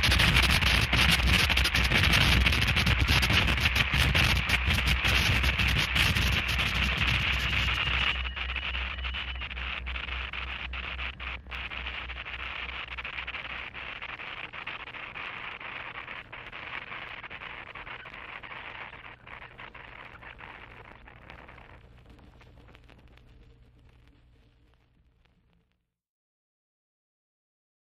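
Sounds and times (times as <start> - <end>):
throbbing low hum: 0.0 - 14.3
distorted static and crackle: 0.0 - 25.9.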